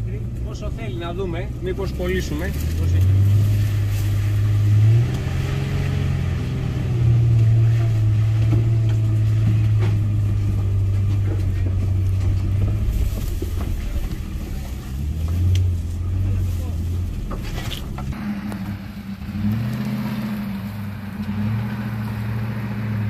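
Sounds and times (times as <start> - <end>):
engine pulling at low revs: 0.0 - 23.0.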